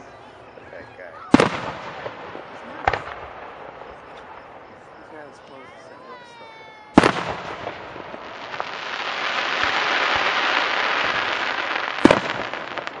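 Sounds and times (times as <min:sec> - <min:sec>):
crackling firework hiss: 0:01.3 - 0:05.4, 0:06.0 - 0:13.0.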